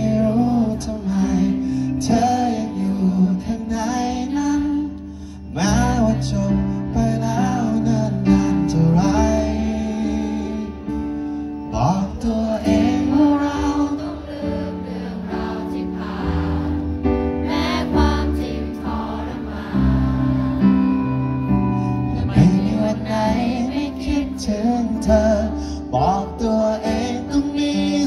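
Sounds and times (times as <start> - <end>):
live band playing pop ballad: 0.0 - 28.0
person singing: 17.5 - 28.0.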